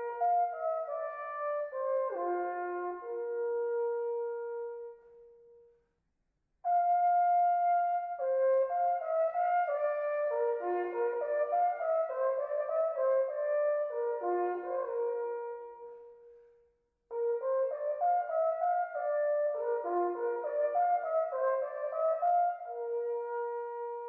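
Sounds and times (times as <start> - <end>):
wooden horns playing in harmony: 8.6 - 16.0, 17.4 - 24.0.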